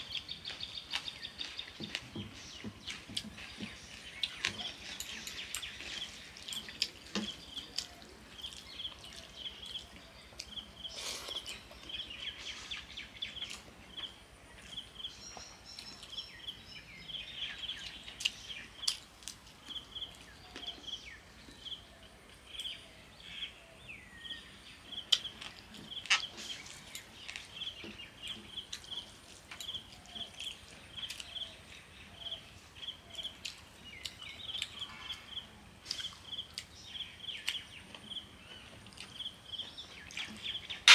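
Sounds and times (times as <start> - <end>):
chewing: 2.8 - 12.0, 25.1 - 32.4, 33.0 - 34.8, 37.4 - 40.9.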